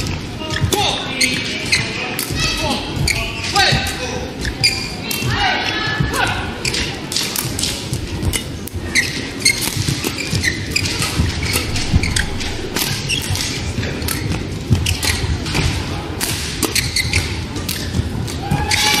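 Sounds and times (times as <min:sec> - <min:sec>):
shoes squeaking: 0:03.0 - 0:05.3, 0:08.2 - 0:13.7, 0:16.6 - 0:19.0.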